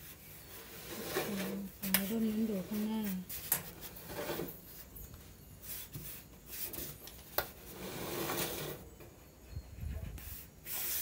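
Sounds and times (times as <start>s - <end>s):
dryer drum scraping and rubbing: 0.0s - 4.9s, 5.8s - 9.0s.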